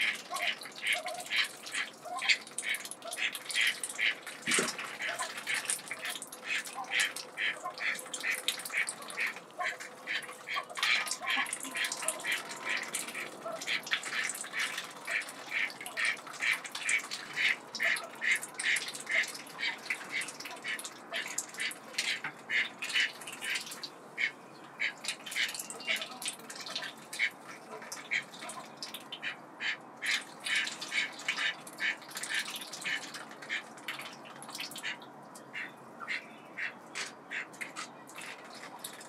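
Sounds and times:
ducks dabbling in water: 0.0s - 39.0s.

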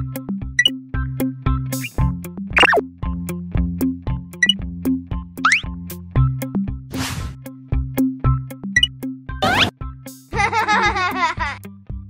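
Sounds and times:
playful children's music: 0.1s - 6.6s, 7.8s - 11.7s
child giggling: 10.4s - 11.6s.

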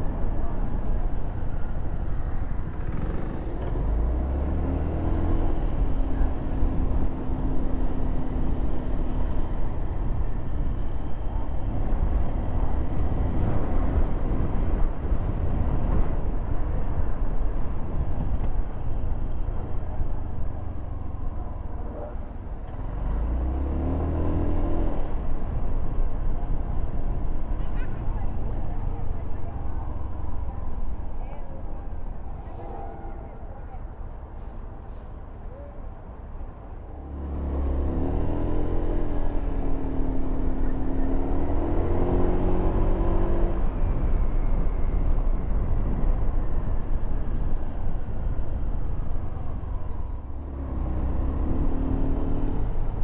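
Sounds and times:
car engine accelerating: 20.2s - 27.5s, 37.0s - 53.0s.

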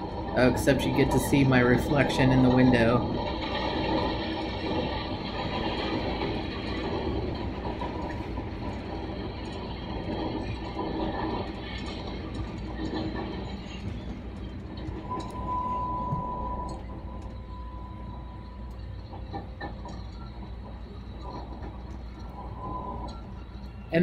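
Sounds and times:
steady high whine: 0.0s - 24.0s
train wheels rumbling on track: 0.0s - 24.0s.

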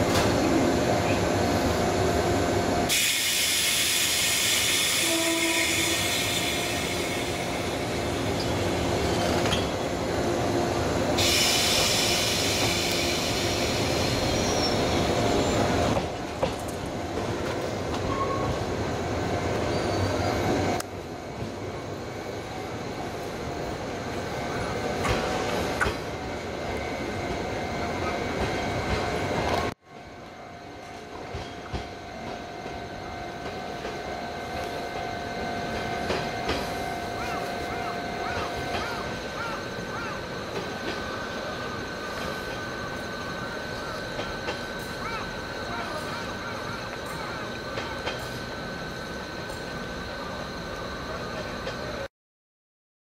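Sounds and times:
train equipment humming: 0.0s - 52.1s
train pulling away: 0.0s - 52.1s
loud hiss: 2.9s - 8.4s, 11.2s - 14.6s.

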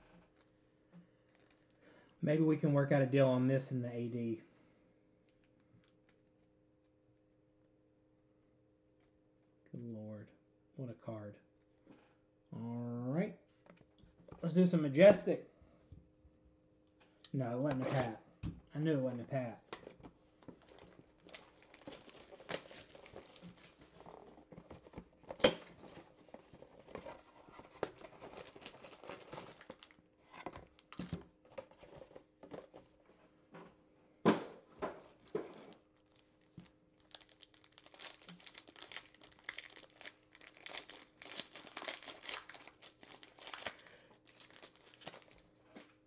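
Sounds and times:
foil pack crinkling and tearing: 20.5s - 31.2s, 36.0s - 45.5s.

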